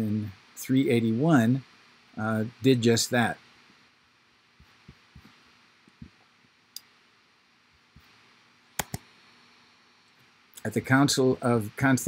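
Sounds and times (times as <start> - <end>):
computer mouse clicks: 8.8 - 9.1.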